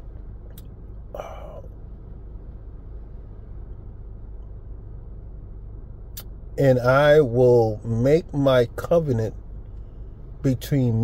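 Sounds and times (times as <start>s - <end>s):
low background rumble: 0.0s - 11.0s
short breath: 1.2s - 1.7s.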